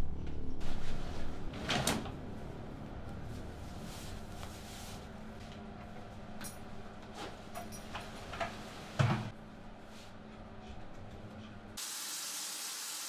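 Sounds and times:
clothes rustling: 3.2 - 5.6.

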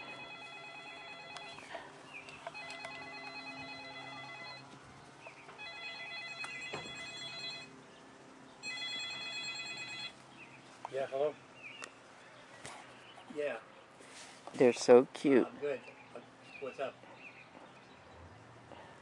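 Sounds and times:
phone ringtone ringing: 0.0 - 1.7, 2.5 - 4.7, 5.6 - 7.7, 8.6 - 10.2.

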